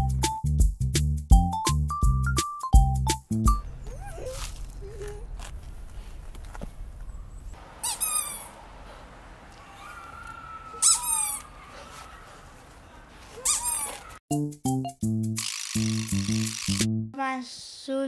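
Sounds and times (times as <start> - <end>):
clown nose squeaks: 7.8 - 8.5, 10.7 - 11.5, 13.4 - 14.1.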